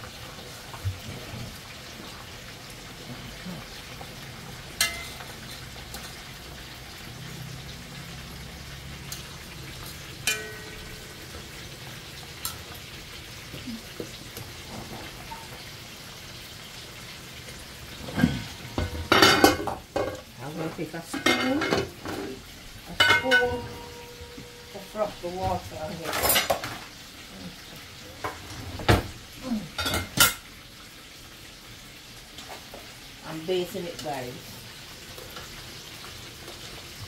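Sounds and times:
meat sizzling in a pot: 0.0s - 37.0s
utensil knocking and scraping pot: 18.1s - 26.8s.

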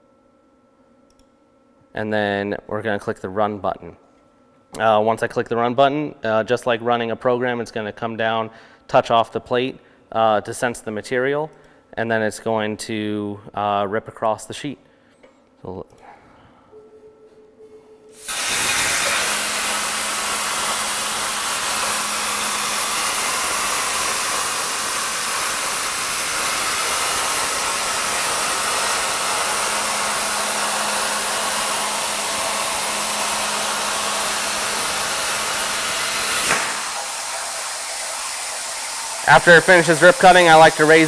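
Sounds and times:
plasma cutter hiss: 18.2s - 31.8s, 33.9s - 41.0s.

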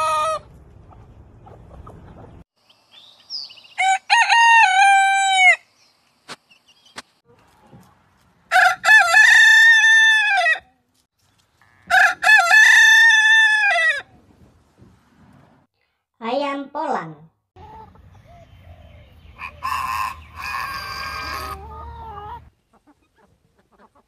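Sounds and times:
roosters crowing: 3.8s - 5.7s, 8.5s - 10.7s, 11.8s - 14.1s, 18.2s - 22.4s.

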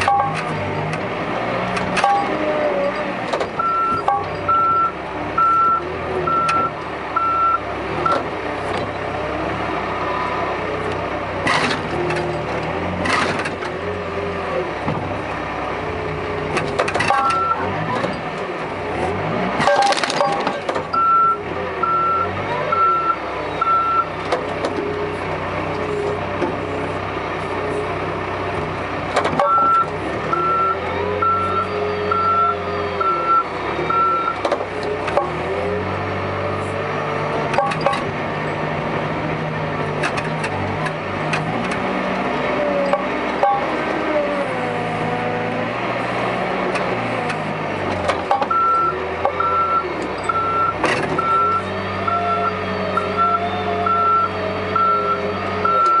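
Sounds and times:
reversing alarm beeping: 0.0s - 0.4s, 3.6s - 8.2s, 17.1s - 17.7s, 20.2s - 24.2s, 29.4s - 34.4s, 48.5s - 56.0s
diesel engine running and revving: 0.0s - 56.0s.

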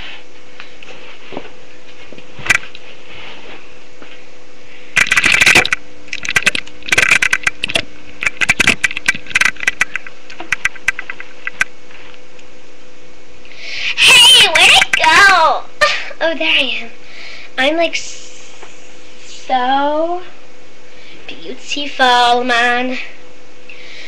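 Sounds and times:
electrical hum: 0.0s - 24.0s
microphone handling clicks and scrapes: 0.8s - 4.2s, 5.0s - 12.2s.

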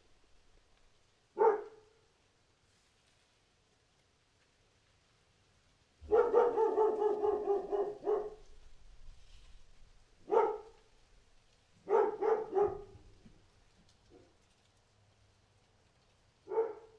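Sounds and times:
dog barking: 1.4s - 2.0s, 6.0s - 8.5s, 10.2s - 10.8s, 11.8s - 13.2s, 16.5s - 16.9s.

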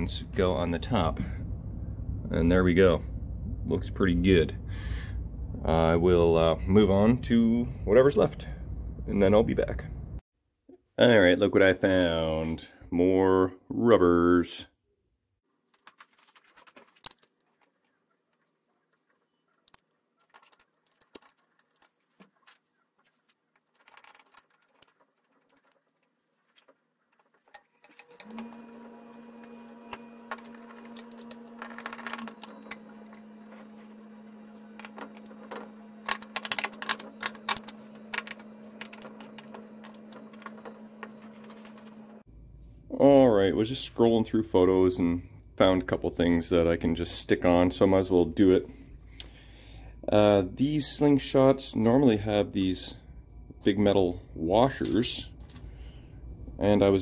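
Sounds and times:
steady low hum: 0.0s - 10.2s, 28.1s - 57.0s
small clicks and metallic clatter: 15.7s - 28.5s.

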